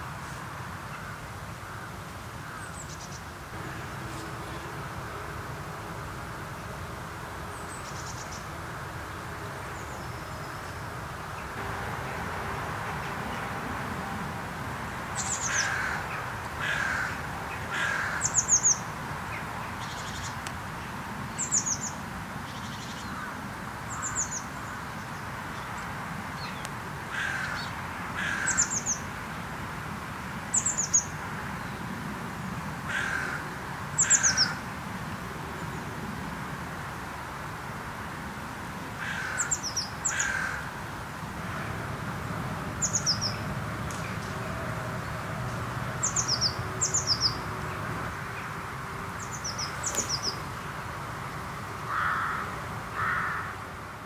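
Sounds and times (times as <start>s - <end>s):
crows cawing: 15.4s - 18.5s, 27.1s - 28.8s, 32.9s - 34.6s, 39.0s - 40.7s, 51.9s - 53.6s.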